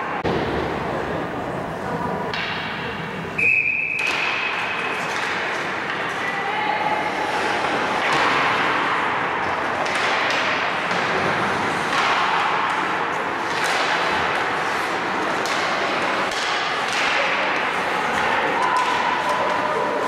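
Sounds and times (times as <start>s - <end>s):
skates scraping ice: 4.2s - 20.0s
sticks and puck clicking: 5.0s - 6.2s, 9.4s - 11.2s, 11.8s - 20.0s.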